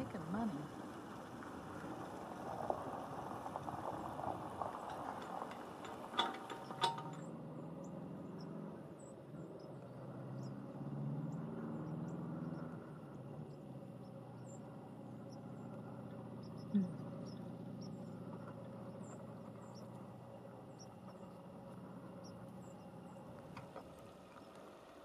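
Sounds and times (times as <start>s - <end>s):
chairlift rattling over sheave wheels: 0.0s - 7.8s
moving cable rumble: 0.0s - 25.0s
sharp metal clanks: 4.9s - 7.3s.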